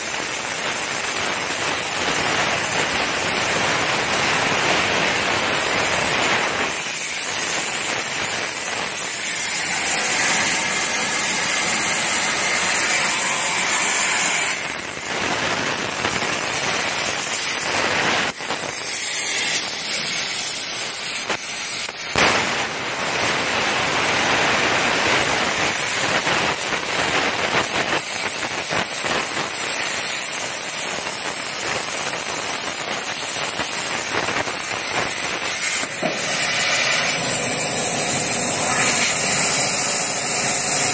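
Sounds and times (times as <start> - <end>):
plasma torch hissing and crackling: 0.0 - 40.9
sharp crack: 21.2 - 23.1.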